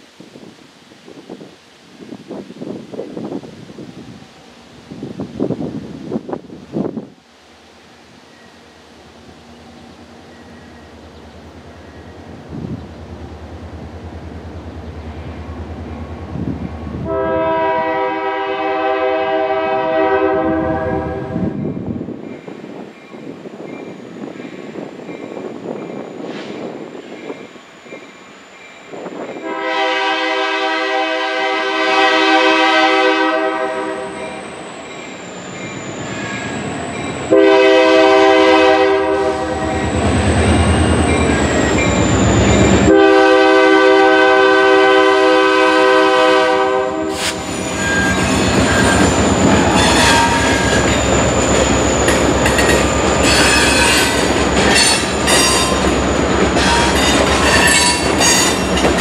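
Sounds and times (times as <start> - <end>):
locomotive air horn blasts: 17.0 - 21.6, 29.4 - 34.5, 37.3 - 40.0, 42.8 - 49.0, 49.6 - 50.9, 53.2 - 55.8, 56.6 - 58.8
train wheels clattering and squealing: 34.2 - 37.3, 39.7 - 43.0, 47.1 - 59.0.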